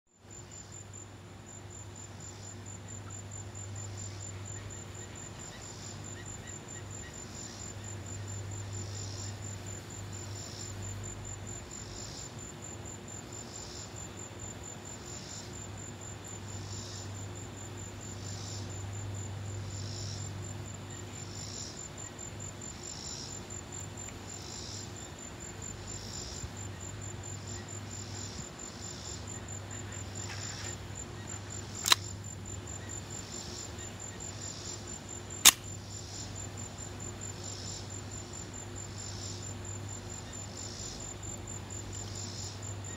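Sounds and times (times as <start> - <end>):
insects chirping: 0.2 - 42.9
pistol metallic clicks: 31.8 - 32.1, 35.4 - 35.7.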